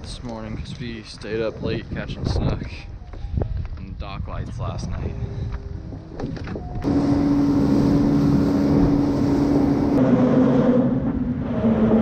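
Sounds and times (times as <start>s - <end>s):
wind noise on microphone: 0.0s - 11.9s
outboard motor running: 6.1s - 10.0s.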